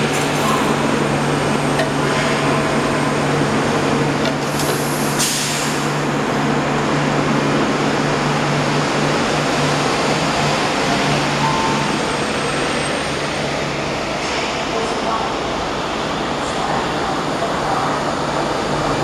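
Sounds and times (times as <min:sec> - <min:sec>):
doors sliding shut: 0:00.0 - 0:01.0.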